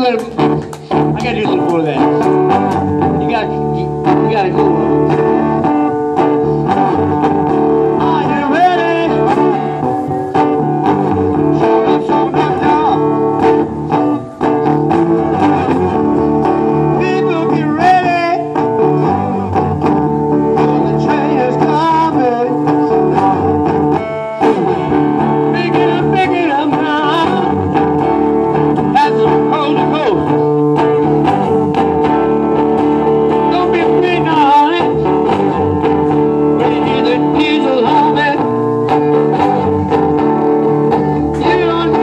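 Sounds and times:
acoustic guitar blues: 0:00.0 - 0:42.0
man singing into microphone: 0:07.8 - 0:10.6, 0:11.3 - 0:13.5, 0:16.7 - 0:19.6, 0:20.4 - 0:23.3, 0:25.2 - 0:27.8, 0:28.8 - 0:30.4, 0:33.3 - 0:35.6, 0:36.3 - 0:39.6, 0:40.6 - 0:42.0.

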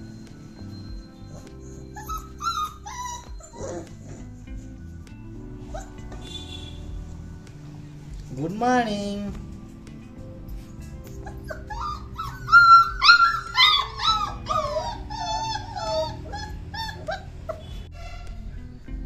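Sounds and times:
puppies crying and yelping: 0:00.0 - 0:04.9, 0:05.6 - 0:06.3, 0:11.0 - 0:18.4.

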